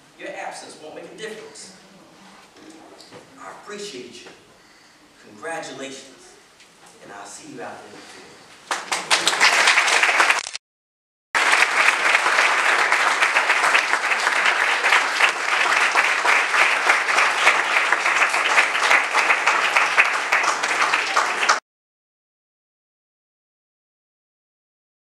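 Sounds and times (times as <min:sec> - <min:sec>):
audience applauding: 0:08.7 - 0:10.6, 0:11.4 - 0:21.6.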